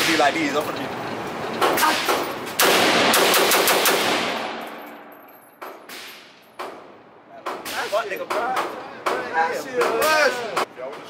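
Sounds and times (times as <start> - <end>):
gunshots echoing indoors: 1.8 - 5.2.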